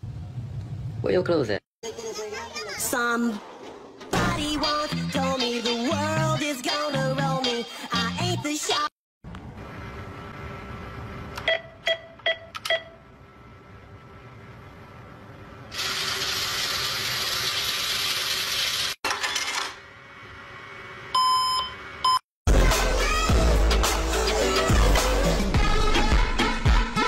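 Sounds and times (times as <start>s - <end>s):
short keypad beeps: 11.4s - 13.0s
cash dispensing whirr: 15.0s - 22.2s.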